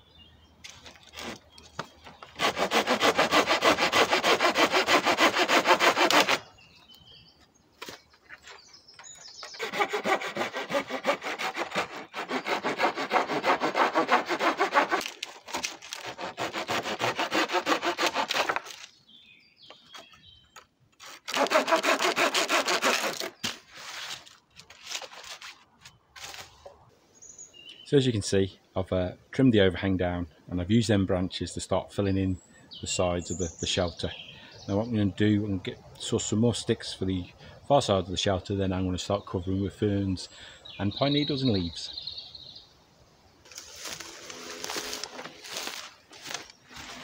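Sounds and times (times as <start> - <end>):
hand saw cutting wood: 1.1 - 1.4, 2.3 - 6.5, 9.4 - 18.9, 21.0 - 24.4, 43.5 - 47.0.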